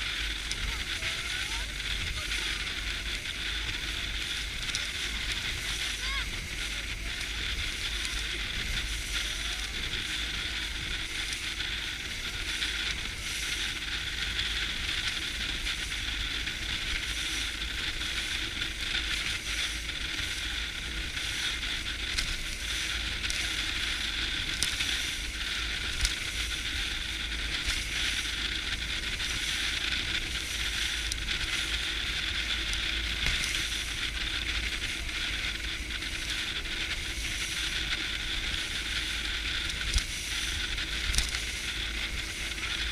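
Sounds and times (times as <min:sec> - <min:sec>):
low engine rumble: 0:00.0 - 0:42.9
water and wind hissing along hull: 0:00.0 - 0:42.9.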